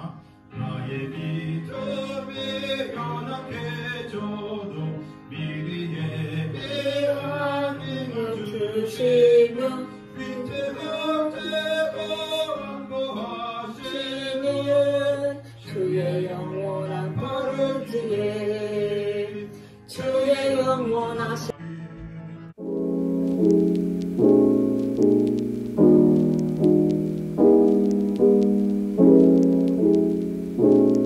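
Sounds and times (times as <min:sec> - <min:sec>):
song with singing voice: 0:00.0 - 0:21.6.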